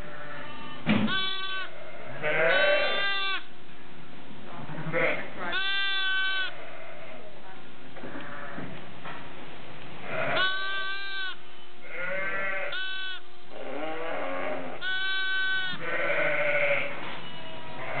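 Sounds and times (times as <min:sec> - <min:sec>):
lambs bleating: 0:00.0 - 0:03.5, 0:04.7 - 0:07.2, 0:10.0 - 0:18.0.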